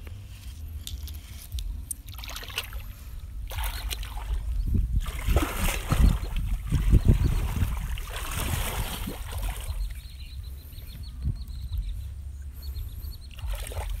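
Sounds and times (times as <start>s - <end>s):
steady low rumble: 0.0s - 14.0s
person wading through water: 2.0s - 10.6s, 12.8s - 14.0s.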